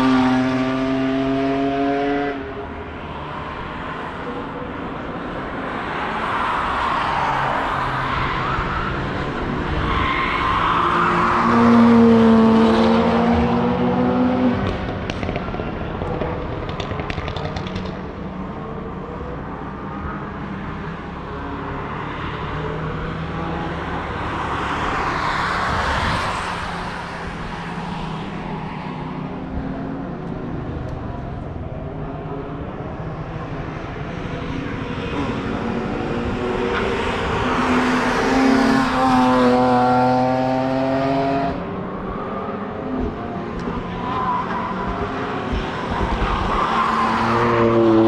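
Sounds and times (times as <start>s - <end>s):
race car passing: 0.0s - 16.6s, 19.8s - 48.0s
distant race car engines: 0.0s - 48.0s.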